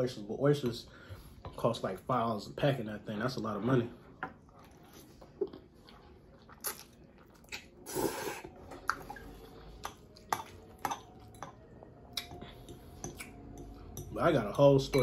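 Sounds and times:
person chewing and slurping noodles: 0:04.5 - 0:13.9.

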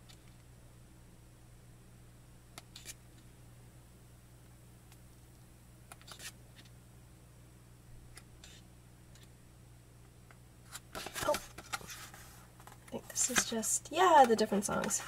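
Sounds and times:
pages flipping in a flurry: 0:06.0 - 0:06.7, 0:10.7 - 0:13.5
paper pages rustling: 0:10.7 - 0:15.0.

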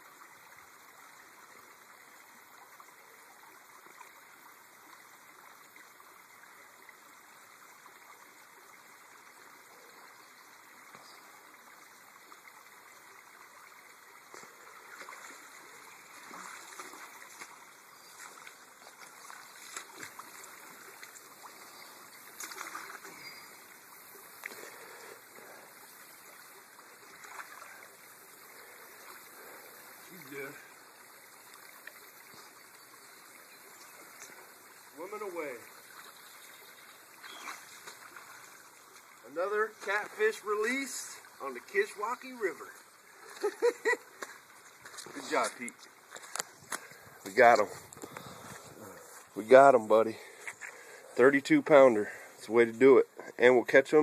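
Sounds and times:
water splashes and knocks: 0:14.3 - 0:21.7, 0:22.3 - 0:23.3, 0:27.1 - 0:27.8, 0:37.2 - 0:39.1.

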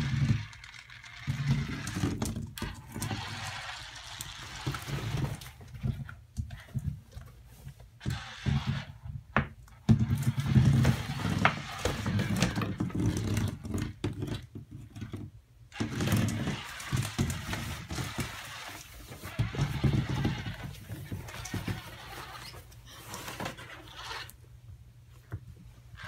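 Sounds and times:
scratches and light knocks: 0:09.8 - 0:24.4.

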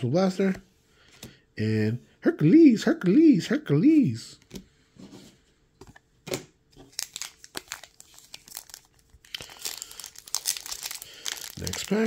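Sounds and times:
foil wrapper crinkling and tearing: 0:06.8 - 0:12.0.

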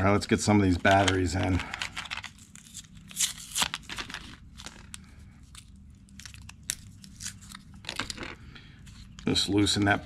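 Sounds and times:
plastic packaging crinkling: 0:00.8 - 0:08.5.

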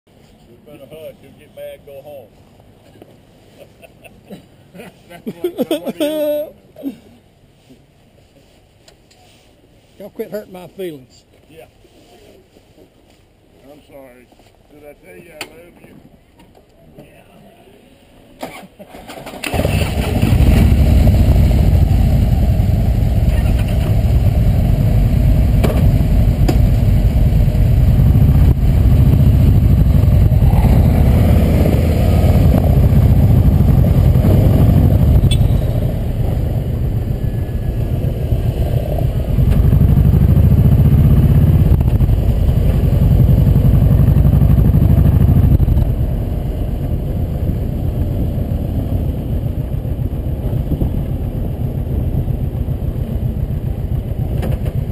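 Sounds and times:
motorcycle engine rumbling: 0:18.9 - 0:54.9.

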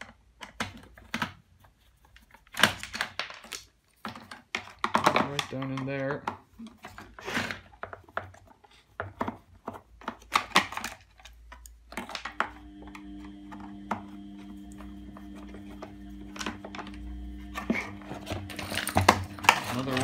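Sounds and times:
steady multi-tone hum: 0:12.1 - 0:20.0.

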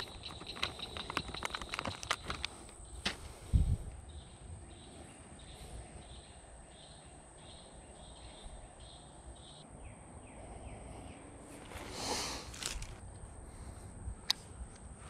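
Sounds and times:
brief rustle: 0:11.6 - 0:13.0.

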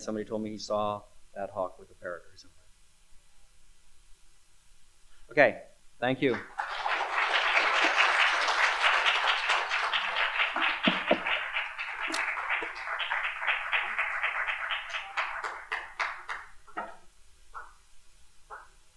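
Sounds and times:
audience applauding: 0:06.3 - 0:16.9.

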